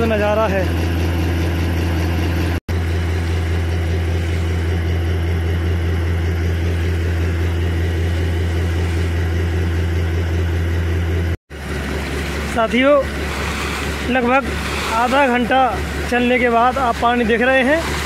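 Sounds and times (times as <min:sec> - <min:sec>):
water gushing and splashing: 0:02.7 - 0:10.2, 0:11.5 - 0:18.0
air compressor humming: 0:02.7 - 0:18.0.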